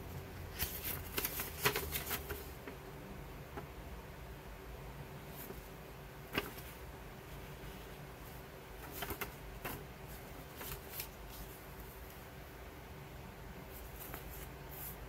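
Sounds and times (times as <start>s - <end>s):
paper rustling: 0.5s - 2.8s, 5.2s - 5.7s, 6.3s - 6.8s, 7.5s - 12.2s, 13.7s - 15.0s.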